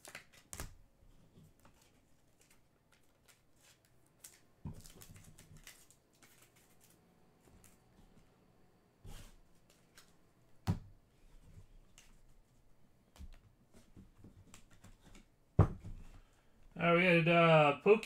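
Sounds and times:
cards rustling into plastic sleeves: 0:00.0 - 0:08.2, 0:09.1 - 0:10.2, 0:11.2 - 0:15.4.

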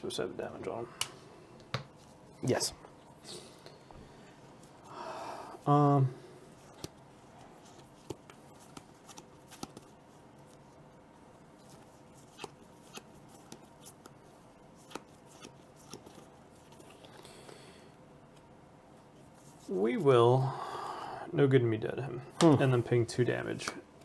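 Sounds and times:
cards clicking and tapping: 0:07.7 - 0:09.9.

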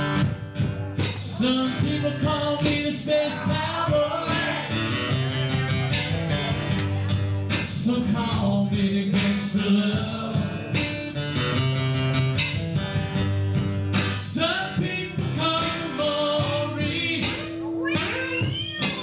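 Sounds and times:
strummed acoustic guitar: 0:00.0 - 0:19.0
person singing: 0:01.0 - 0:04.9, 0:14.3 - 0:19.0.

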